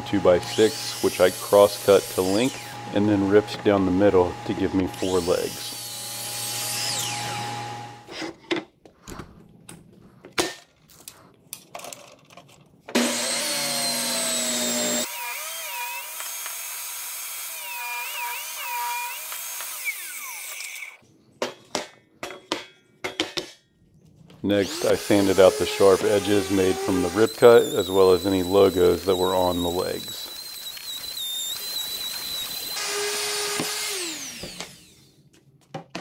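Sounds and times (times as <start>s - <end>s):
table saw ripping wood: 0.4s - 8.5s, 12.9s - 21.0s, 24.5s - 35.2s
miter saw running: 13.0s - 21.0s, 24.6s - 35.1s.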